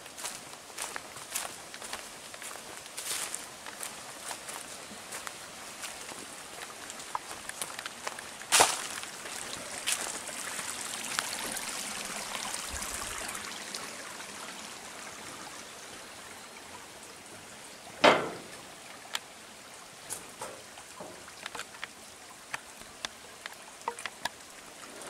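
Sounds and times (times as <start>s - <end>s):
light footsteps on track: 0.0s - 11.4s
creek running and splashing: 0.0s - 25.0s.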